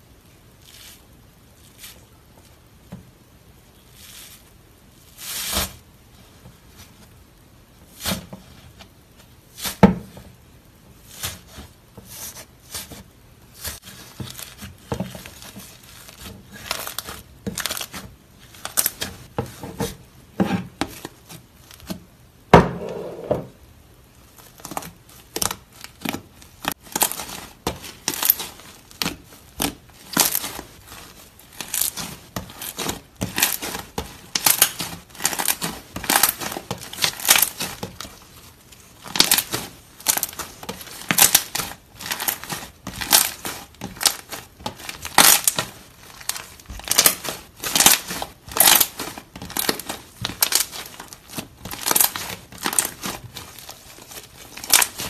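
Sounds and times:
slime crackling and popping: 0:11.0 - 0:20.1, 0:24.1 - 0:55.0.

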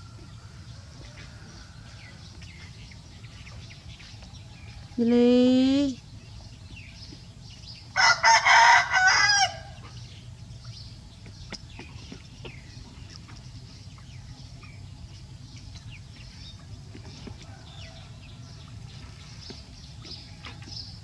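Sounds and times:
small birds chirping: 0:00.0 - 0:08.1, 0:09.5 - 0:21.0
low background hum: 0:00.0 - 0:21.0
rooster crowing: 0:08.0 - 0:09.8.

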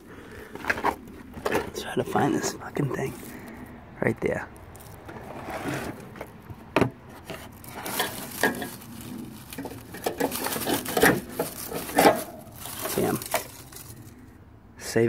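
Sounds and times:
dry leaves rustling: 0:00.0 - 0:14.3
metal tool clinking and scraping: 0:07.2 - 0:14.1.

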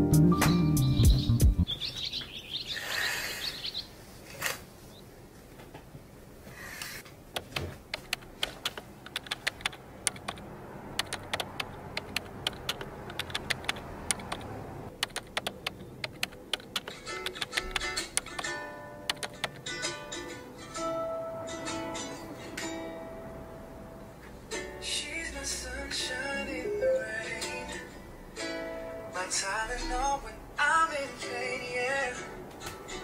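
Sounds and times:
birds chirping: 0:00.6 - 0:04.0
typing on smartphone keyboard: 0:07.3 - 0:18.5, 0:19.1 - 0:19.7.

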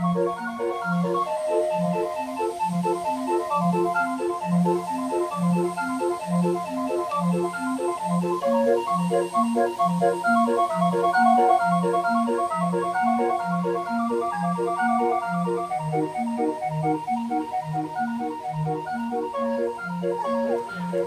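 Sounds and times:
calliope playing a bouncy tune: 0:00.0 - 0:21.0.

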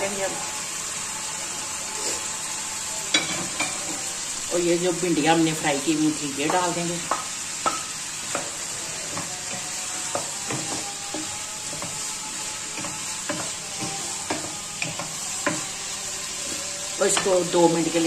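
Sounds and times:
food sizzling: 0:00.0 - 0:18.0
spatula scraping and knocking pan: 0:06.4 - 0:18.0.

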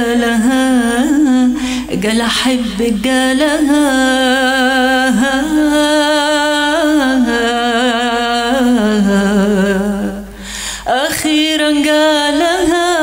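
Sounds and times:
woman singing unaccompanied: 0:00.0 - 0:10.3, 0:10.9 - 0:13.0
woman breathing in: 0:01.6 - 0:01.9, 0:10.3 - 0:10.9.

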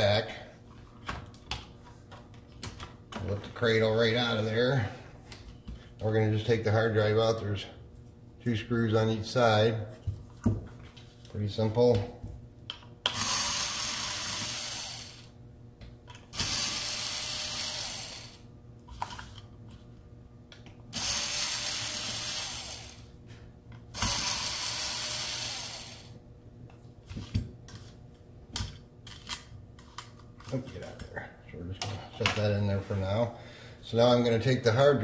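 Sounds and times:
electric screwdriver running: 0:13.1 - 0:15.3, 0:16.3 - 0:18.5, 0:20.9 - 0:23.1, 0:24.0 - 0:26.2.

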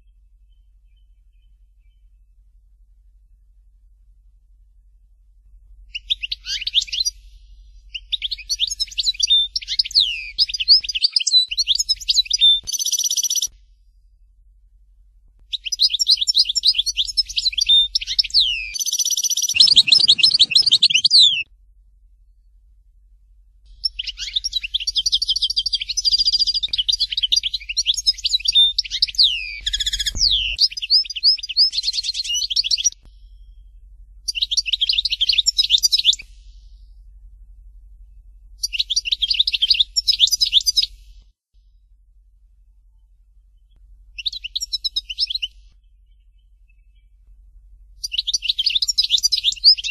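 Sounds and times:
goldfinch twittering and trills: 0:15.6 - 0:21.4, 0:48.0 - 0:49.9.

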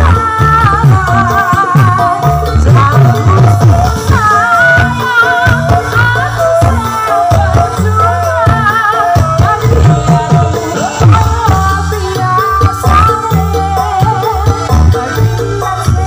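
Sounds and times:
keyboard bass and drums: 0:00.0 - 0:16.0
woman singing: 0:00.0 - 0:16.0.

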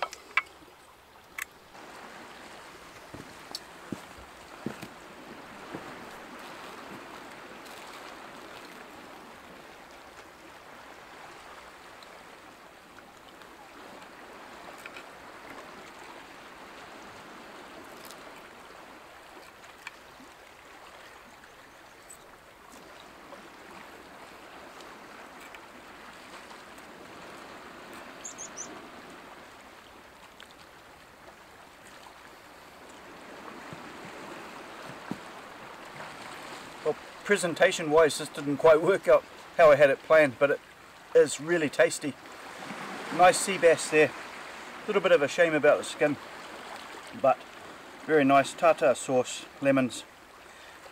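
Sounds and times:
sea washing over rocks: 0:01.7 - 0:12.7, 0:32.4 - 0:50.9.

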